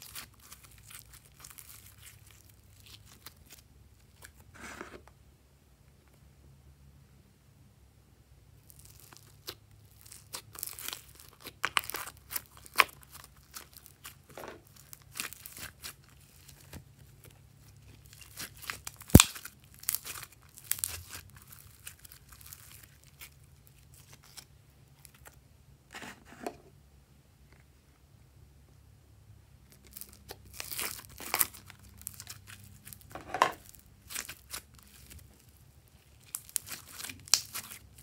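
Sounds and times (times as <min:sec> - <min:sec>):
slime squeezed crackling and popping: 0:00.0 - 0:04.4, 0:08.6 - 0:25.3, 0:29.7 - 0:38.0.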